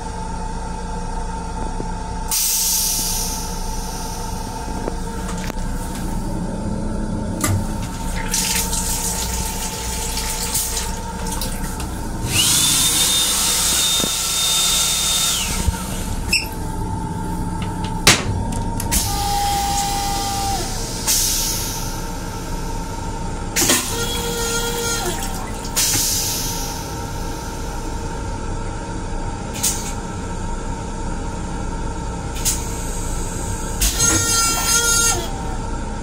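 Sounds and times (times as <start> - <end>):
train running hum: 0.0 - 36.0
faucet running: 7.7 - 14.3.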